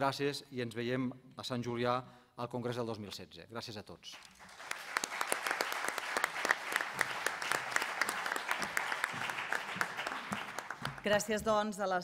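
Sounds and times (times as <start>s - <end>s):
audience applause: 4.2s - 11.3s.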